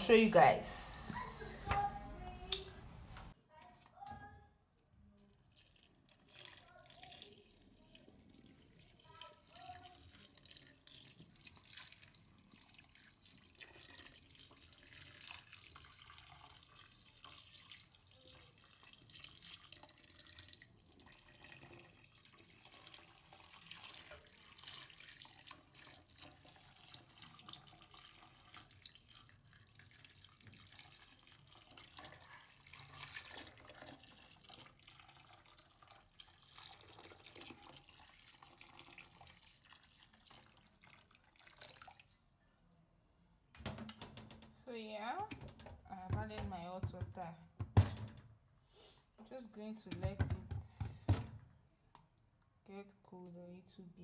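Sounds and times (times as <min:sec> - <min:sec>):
water trickling and splashing: 0:05.2 - 0:42.3.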